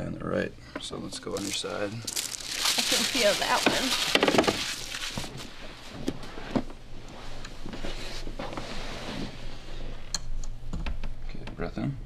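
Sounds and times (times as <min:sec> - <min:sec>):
rustling and creaking on vinyl table: 0:01.3 - 0:10.0.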